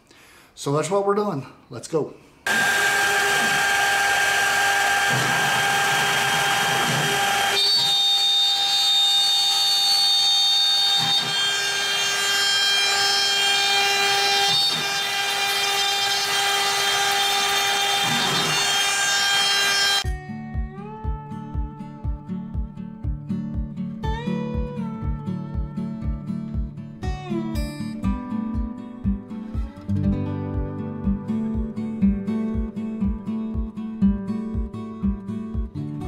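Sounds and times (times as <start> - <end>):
router spindle whine: 2.5 - 20.0.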